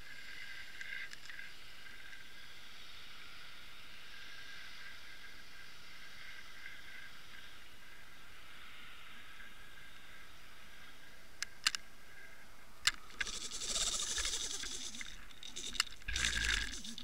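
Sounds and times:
sharp clicks: 0:12.8 - 0:17.0.

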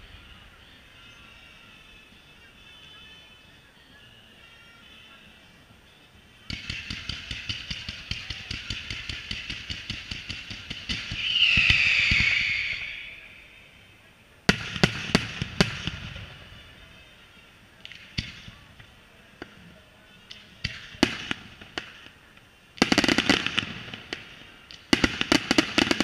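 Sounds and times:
loud sharp fireworks bangs: 0:06.5 - 0:13.5, 0:14.5 - 0:16.6, 0:22.8 - 0:26.0
fireworks volley: 0:06.5 - 0:16.9, 0:17.8 - 0:26.0
fireworks hiss: 0:10.9 - 0:13.8.

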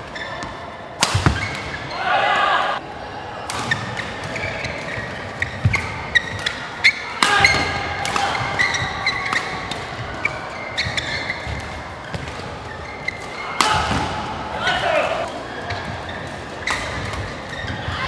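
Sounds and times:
rackets hitting shuttlecock: 0:00.1 - 0:01.9, 0:03.4 - 0:17.9
shoes squeaking on floor: 0:04.3 - 0:07.6, 0:08.4 - 0:13.5, 0:17.2 - 0:18.0.

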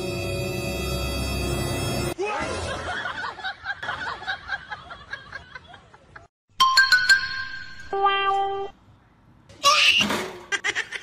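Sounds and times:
person laughing: 0:10.5 - 0:11.0.

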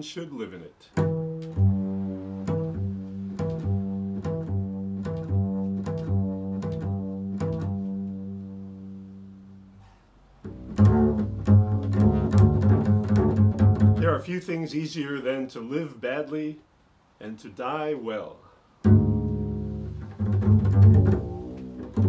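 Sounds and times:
double bass improvisation: 0:00.9 - 0:14.5, 0:18.7 - 0:22.0.

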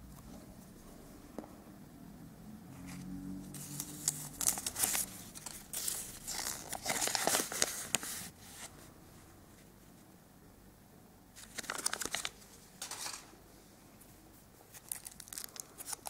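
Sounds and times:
paper leaflet crinkling: 0:03.5 - 0:08.8, 0:11.4 - 0:13.2, 0:14.7 - 0:16.0.

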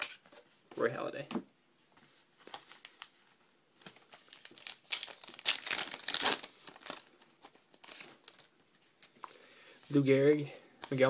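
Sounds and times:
paper wrapper crinkling and tearing: 0:02.4 - 0:09.2.

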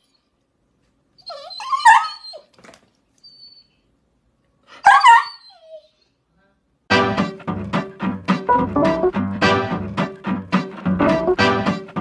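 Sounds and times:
dog whining yelps: 0:01.2 - 0:02.6, 0:03.2 - 0:03.9, 0:04.7 - 0:06.1.

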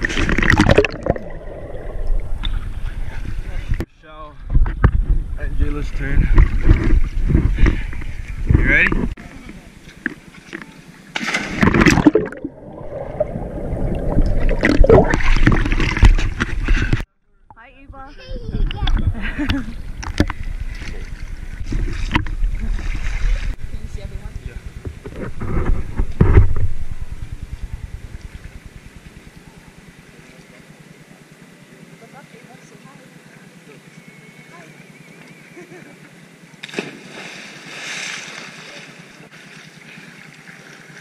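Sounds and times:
low pulsing rumble: 0:00.0 - 0:30.3
big splash: 0:11.1 - 0:16.9, 0:36.6 - 0:39.0
choppy splashing: 0:11.2 - 0:17.0.

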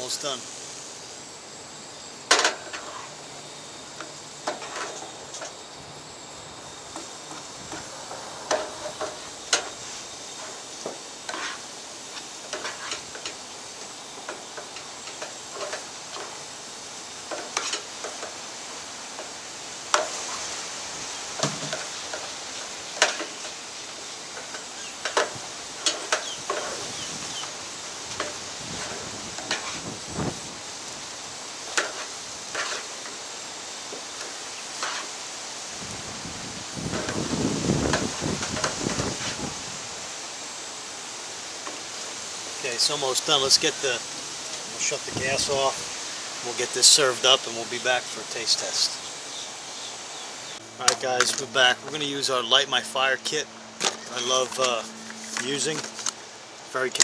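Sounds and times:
eggs sizzling in a pan: 0:00.0 - 0:53.2
spatula scraping and tapping pan: 0:04.0 - 0:05.5, 0:11.3 - 0:11.6, 0:12.5 - 0:13.4, 0:17.3 - 0:18.4, 0:28.2 - 0:29.8, 0:31.7 - 0:33.2, 0:34.2 - 0:35.1.

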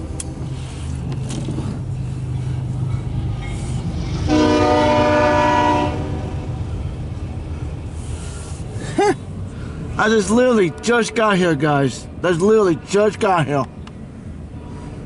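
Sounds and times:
freight locomotive rumbling past: 0:00.0 - 0:15.0
train air horn blast: 0:04.3 - 0:06.4.

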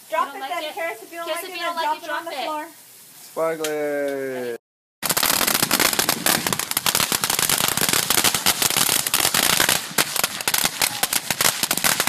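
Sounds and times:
firework crackling: 0:00.0 - 0:03.9, 0:05.0 - 0:12.0.

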